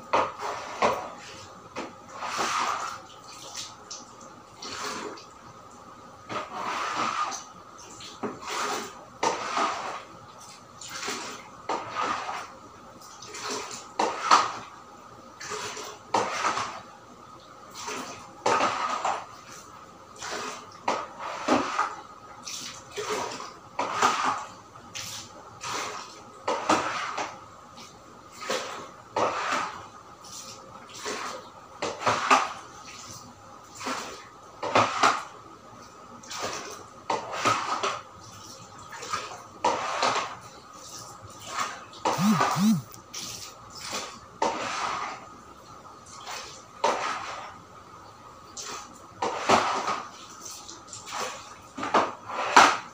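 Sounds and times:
brush scrubbing tiled floor: 0.4 - 1.5, 2.1 - 3.7, 4.6 - 5.1, 6.3 - 7.5, 8.3 - 10.1, 10.9 - 12.6, 15.5 - 16.8, 17.7 - 19.6, 20.2 - 31.4, 32.0 - 35.3, 46.3 - 47.6, 48.6 - 52.8.

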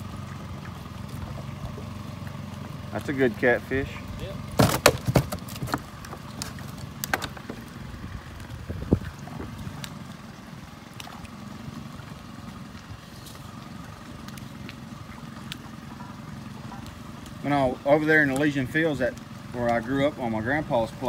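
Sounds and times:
boat motor idling: 0.0 - 21.0
clicks and knocks of gear: 4.6 - 7.7.

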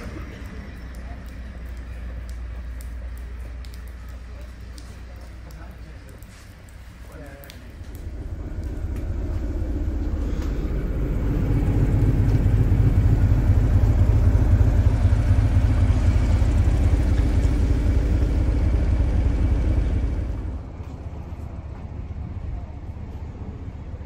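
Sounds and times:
diesel locomotive engine rumbling: 0.0 - 24.0.

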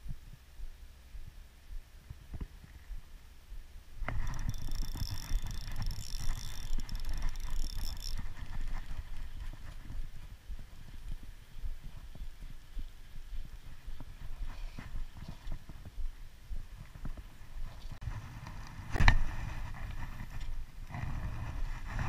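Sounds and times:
reel click: 4.0 - 9.8
fishing line whirring off reel: 4.0 - 9.9.

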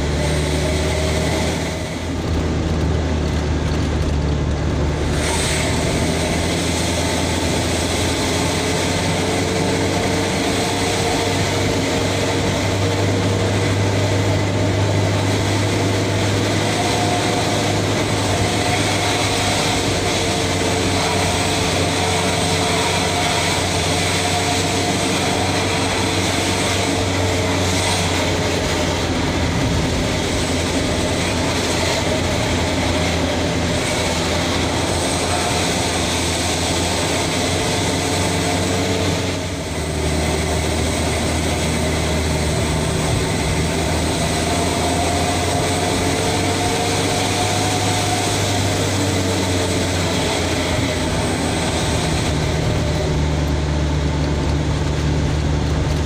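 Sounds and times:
road noise: 0.0 - 56.0
truck engine drone: 0.0 - 56.0.

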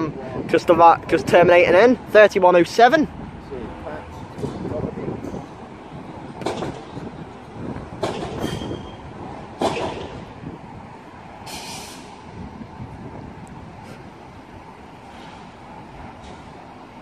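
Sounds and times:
tram running rumble: 0.0 - 17.0
wheel squeal: 8.2 - 9.1
short hiss: 11.4 - 12.2.

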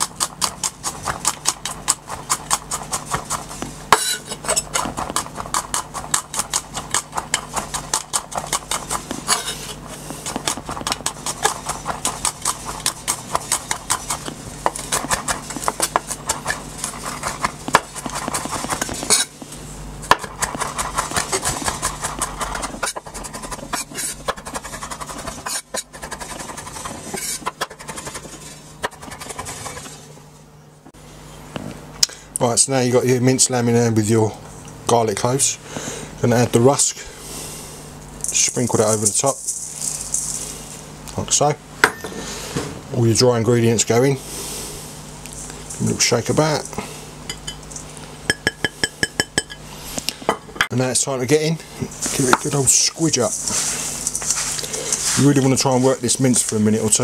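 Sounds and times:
knife chopping on wooden board: 0.0 - 19.4, 20.1 - 29.5.

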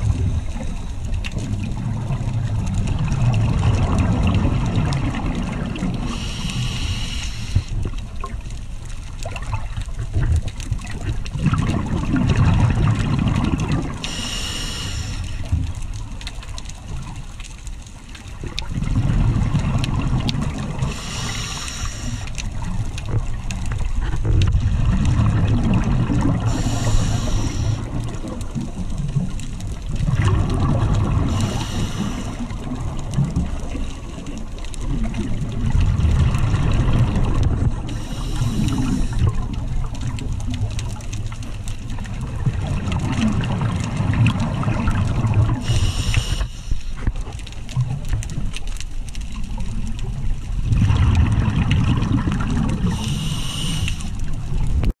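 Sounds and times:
exhaled bubbles gurgling: 0.0 - 54.9
regulator inhalation hiss: 6.1 - 7.8, 14.0 - 15.5, 20.8 - 22.4, 26.5 - 27.9, 31.3 - 32.5, 37.9 - 39.3, 45.6 - 47.0, 52.9 - 54.2.

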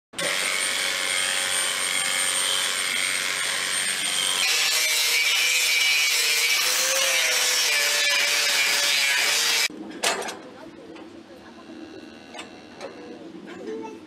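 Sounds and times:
angle grinder grinding hoof: 0.2 - 9.7.

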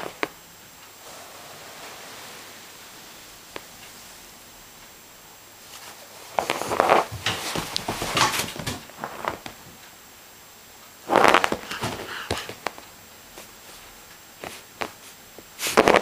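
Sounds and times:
puppy scuffling against sofa: 5.7 - 9.6.

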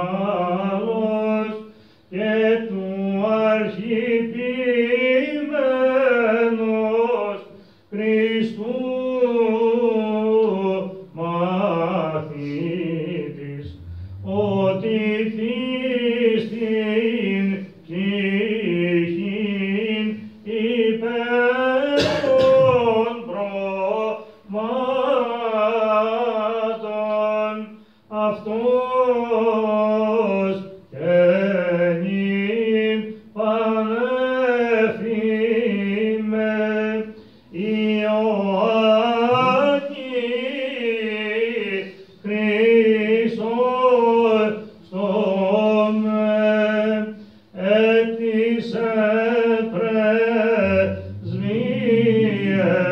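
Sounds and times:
man chanting a hymn: 0.0 - 52.9
low drone note: 13.4 - 15.6, 50.4 - 52.9
knock: 39.3 - 39.7.

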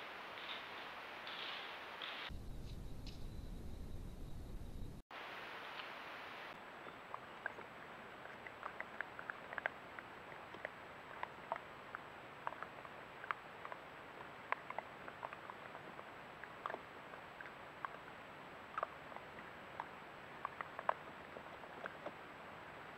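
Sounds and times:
steady hiss: 0.0 - 6.8.

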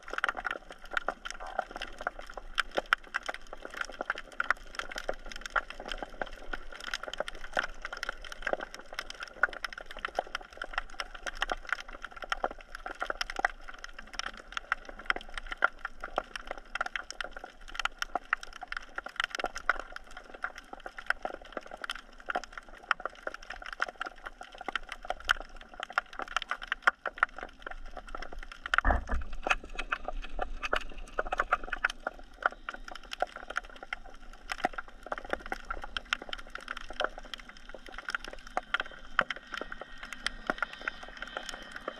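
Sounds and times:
snapping shrimp clicks underwater: 0.0 - 41.9
low rumble: 28.8 - 31.6.

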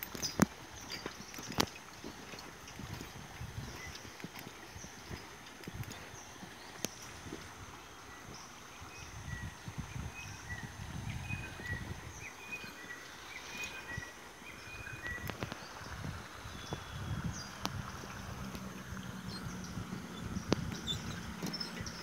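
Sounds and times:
footsteps on metal mesh walkway: 0.0 - 8.5, 17.6 - 22.0.

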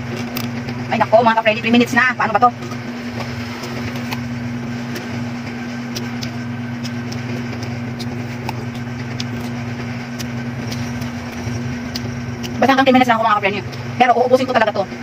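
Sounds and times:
crunchy chewing clicks: 0.0 - 0.7, 2.6 - 13.9
low machine hum: 0.0 - 15.0.

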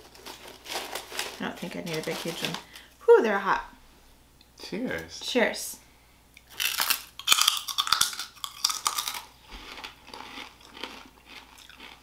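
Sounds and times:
crunchy bites and chewing: 6.4 - 12.0.

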